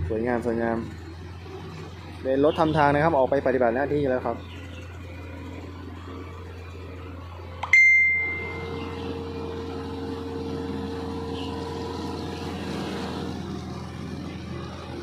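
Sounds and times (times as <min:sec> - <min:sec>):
low machinery hum: 0:00.0 - 0:15.0
bright bell ding: 0:07.6 - 0:08.8.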